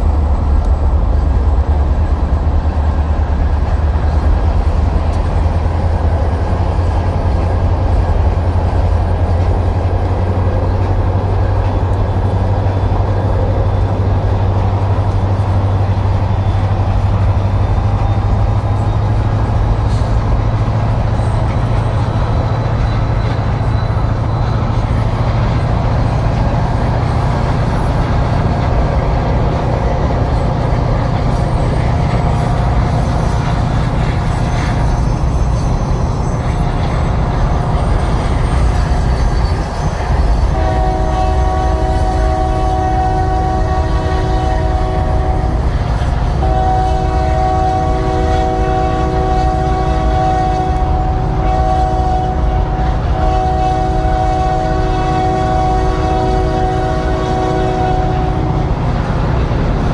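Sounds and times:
moving train rumble: 0:00.0 - 0:59.9
locomotive air horn blasts: 0:39.1 - 0:58.7.

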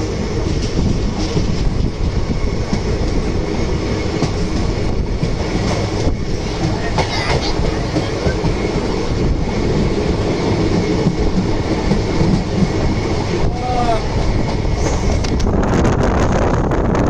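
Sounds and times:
passing train rumble and rail clatter: 0:00.0 - 0:17.0
wind buffeting microphone: 0:00.0 - 0:17.0.

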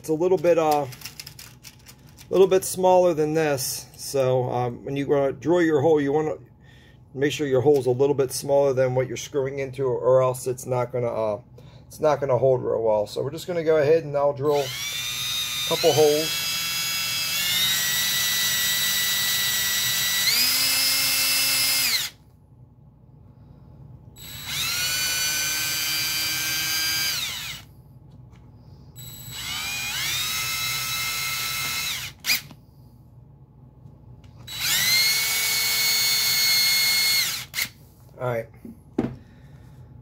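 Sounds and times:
power drill boring into particle board: 0:14.5 - 0:22.2, 0:24.2 - 0:27.7, 0:29.0 - 0:32.5, 0:34.4 - 0:37.7.

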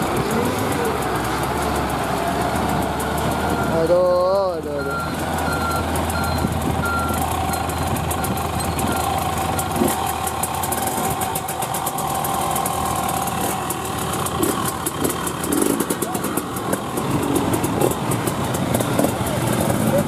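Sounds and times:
motorbike engine idling: 0:00.0 - 0:20.0
high beeping tone: 0:03.4 - 0:09.2.

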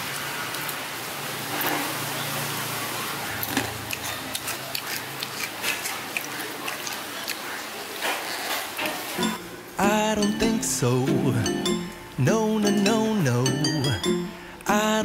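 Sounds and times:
hot oil sizzling and crackling: 0:00.0 - 0:06.2.

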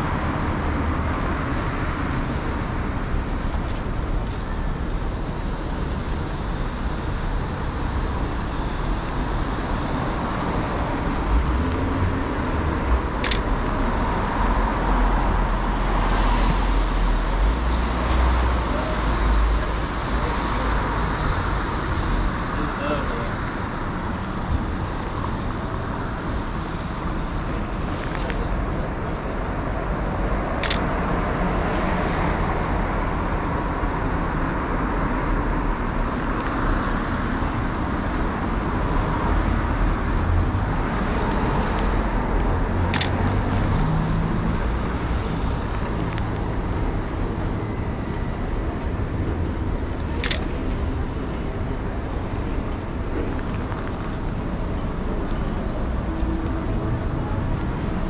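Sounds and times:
city street traffic: 0:00.0 - 0:58.0
camera shutter clicks: 0:13.2 - 0:13.5, 0:30.6 - 0:30.8, 0:43.0 - 0:43.2, 0:50.2 - 0:50.5.

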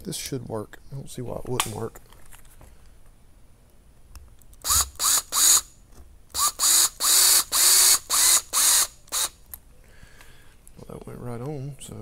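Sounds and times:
electric screwdriver whirring: 0:04.6 - 0:05.7, 0:06.3 - 0:09.4.

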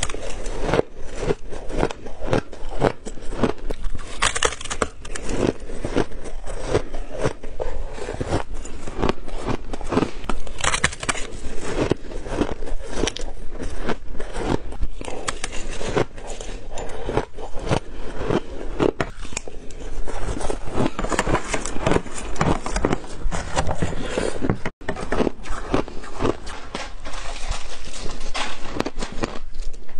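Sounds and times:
ice being chewed: 0:00.0 - 0:29.9
metal spoon scraping glass dish: 0:15.3 - 0:17.6.

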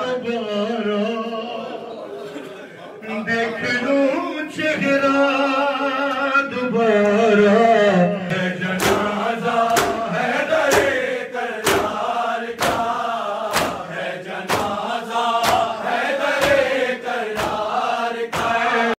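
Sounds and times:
men chanting in unison: 0:03.1 - 0:19.0
chest-beating slaps: 0:08.3 - 0:18.7.

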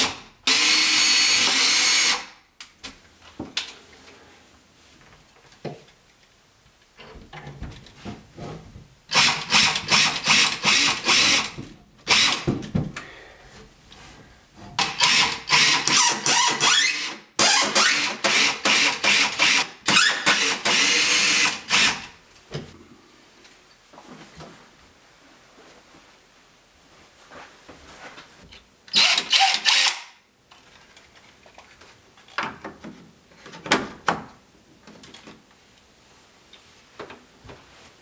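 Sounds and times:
cordless drill bursts: 0:00.0 - 0:02.3, 0:09.1 - 0:11.5, 0:12.1 - 0:12.4, 0:14.8 - 0:22.1, 0:28.9 - 0:30.1.

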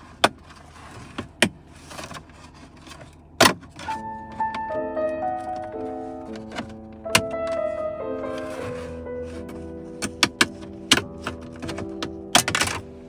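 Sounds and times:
background music with held notes: 0:03.8 - 0:13.0.

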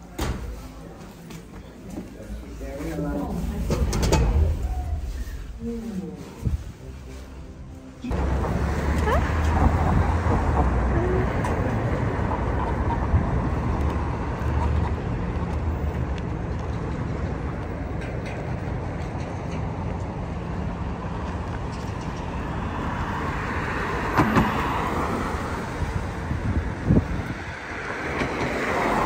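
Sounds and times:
cars driving on wet road: 0:08.1 - 0:29.0.

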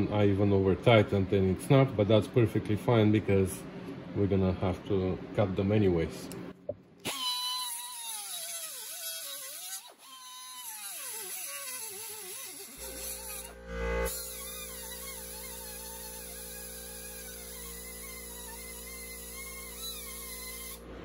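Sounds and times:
grinder cutting steel rods: 0:07.0 - 0:20.8.

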